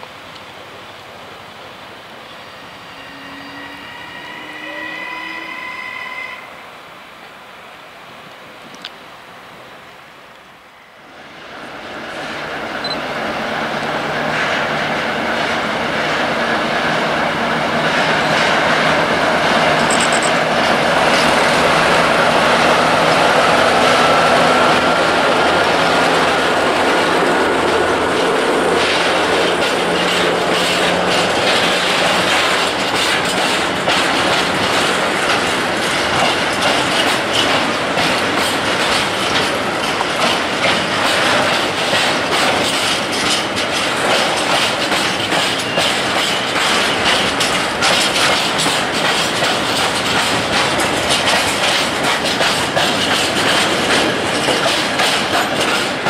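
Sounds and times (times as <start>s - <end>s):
wheel squeal: 2.8s - 6.4s
train wheels rumbling on rail: 10.4s - 56.0s
clickety-clack over rail joints: 11.3s - 56.0s.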